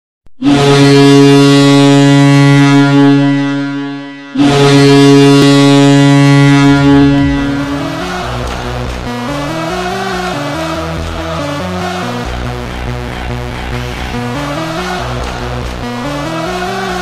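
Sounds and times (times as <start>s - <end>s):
goal horn blasts: 0.4s - 10.0s
goal song music: 4.4s - 17.0s.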